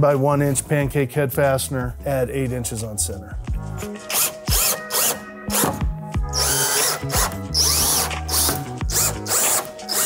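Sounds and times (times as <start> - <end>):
cordless drill driving screws: 4.1 - 10.0.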